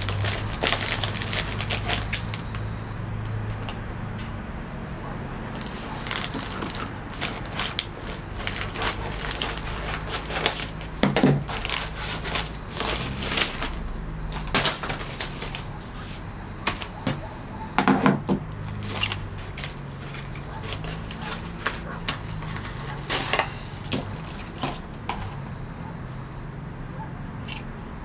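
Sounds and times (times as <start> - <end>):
scissors cutting plastic: 0.0 - 2.6, 5.4 - 16.0, 16.6 - 25.4
plastic bag crinkling: 0.0 - 2.7, 5.4 - 17.2, 18.6 - 25.4.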